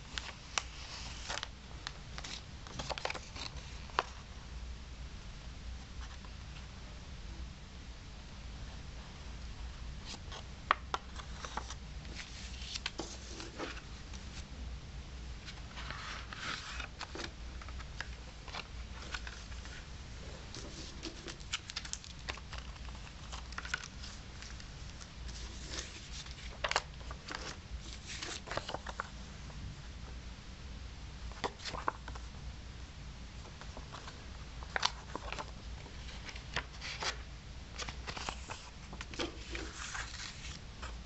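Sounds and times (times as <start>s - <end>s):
card and paper rustling: 0.1s - 1.5s, 2.2s - 4.2s, 10.1s - 14.4s, 15.5s - 29.1s, 31.3s - 32.3s, 33.4s - 41.0s.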